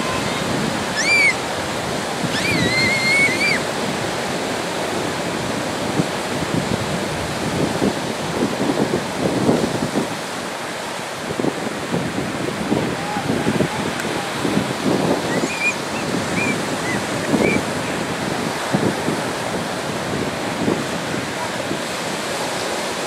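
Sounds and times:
high-pitched cries: 0.0s - 1.5s, 2.2s - 3.7s, 15.2s - 17.6s
ocean surf breaking: 0.0s - 23.0s
wind buffeting microphone: 0.0s - 23.0s.

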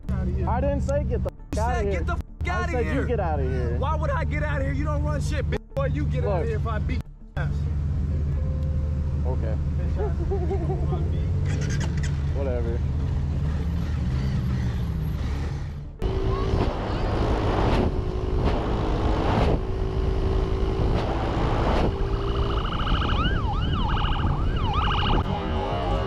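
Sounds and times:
motorcycle running: 7.4s - 26.0s
police siren wailing: 21.4s - 26.0s.

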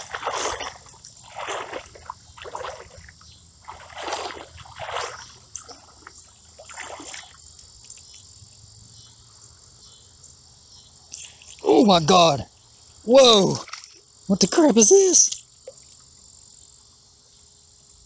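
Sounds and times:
person wading through water: 0.0s - 8.3s
insects trilling: 0.0s - 18.0s.

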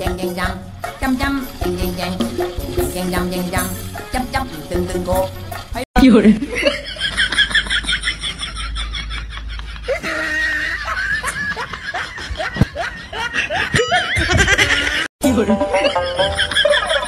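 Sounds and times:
person laughing: 6.1s - 17.0s.

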